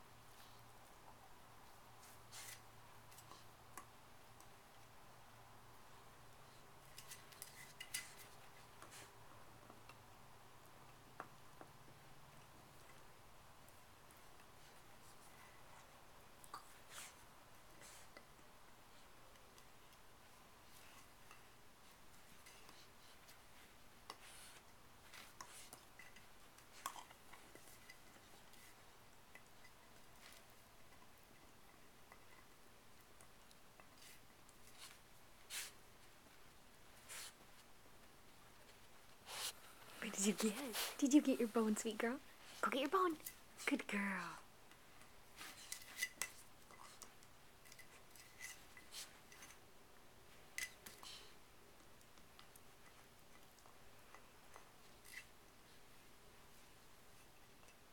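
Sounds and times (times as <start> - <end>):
puppy gnawing a bone: 6.8 - 39.7, 44.6 - 56.2.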